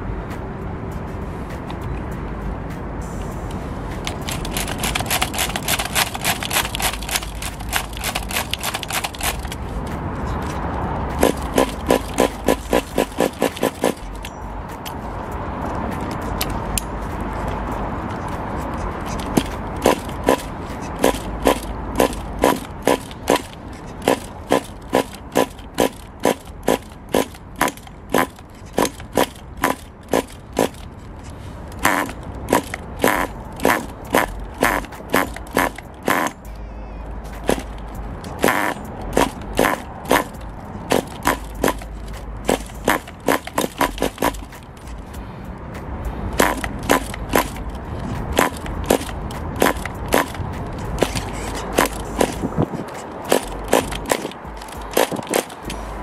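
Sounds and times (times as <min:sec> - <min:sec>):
engine sputters: 0:03.9 - 0:36.6, 0:37.2 - 0:56.0
model car engine popping: 0:04.1 - 0:09.6, 0:11.2 - 0:14.3, 0:19.0 - 0:30.8, 0:31.8 - 0:36.5, 0:37.4 - 0:44.6, 0:46.4 - 0:47.7, 0:48.4 - 0:55.8.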